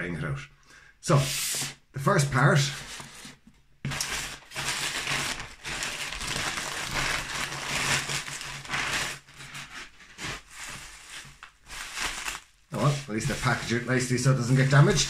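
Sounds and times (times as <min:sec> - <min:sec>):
plastic bag and bubble wrap crinkling: 0:03.9 - 0:15.0.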